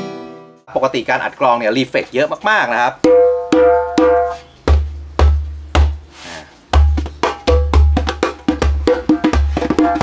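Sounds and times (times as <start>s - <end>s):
djembe bass strokes: 3.0s - 10.0s
djembe tone strokes: 3.0s - 10.0s.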